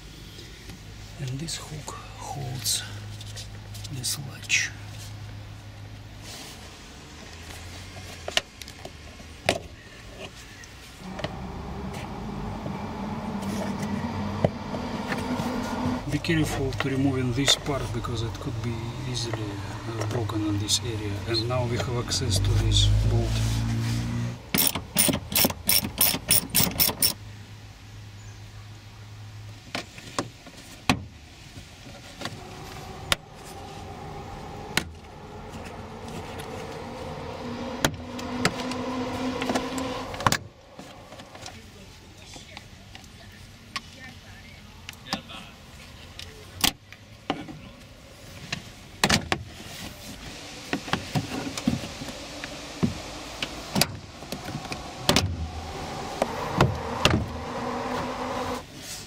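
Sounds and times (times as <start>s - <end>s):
steady low hum: 11.0s - 20.6s, 32.1s - 41.5s.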